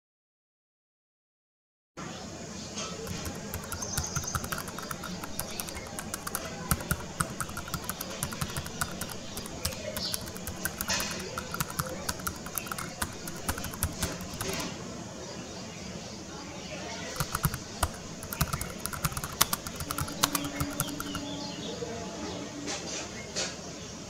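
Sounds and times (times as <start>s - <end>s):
keyboard typing: 3.0s - 14.8s, 17.1s - 21.4s.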